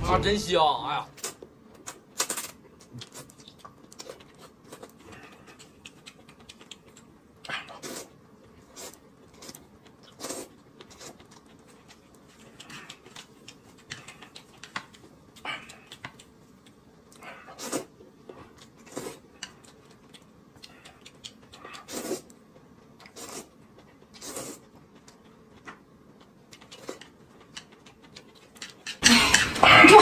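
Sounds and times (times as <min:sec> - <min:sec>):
chewing: 0:01.2 - 0:29.0
man slurping noodles: 0:21.8 - 0:22.2.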